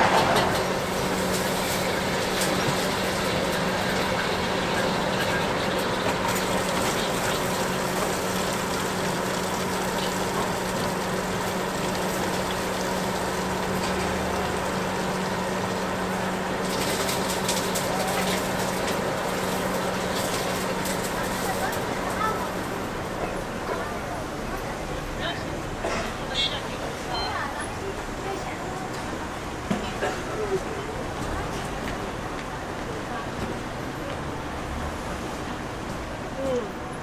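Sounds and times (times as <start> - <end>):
tap water running into basin: 1.0 - 22.5.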